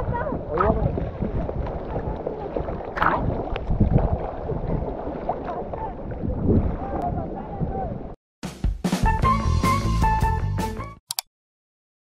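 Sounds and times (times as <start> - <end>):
sea water splashing and sloshing: 0.0 - 8.2
wind rumbling on microphone: 0.0 - 8.2.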